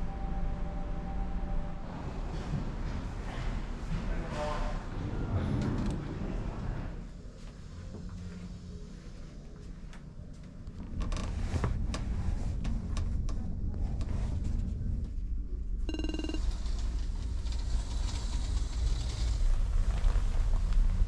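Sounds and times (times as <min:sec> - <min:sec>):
ship engine drone: 0:00.0 - 0:03.8, 0:15.9 - 0:16.8.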